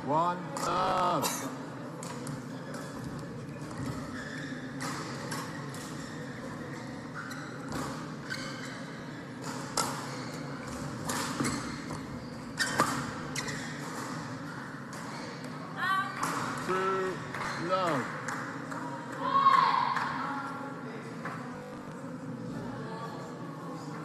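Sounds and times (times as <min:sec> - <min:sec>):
shoes squeaking: 0:02.6 - 0:15.5.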